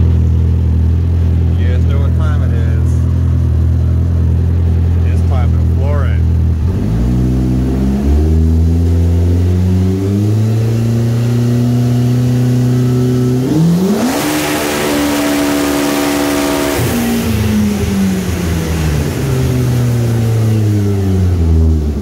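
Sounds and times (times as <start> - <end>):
engine revving at full throttle: 6.5 - 22.0.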